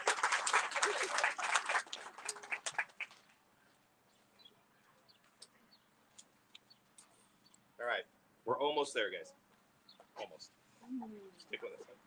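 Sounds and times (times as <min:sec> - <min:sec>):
people clapping: 0:00.0 - 0:03.3.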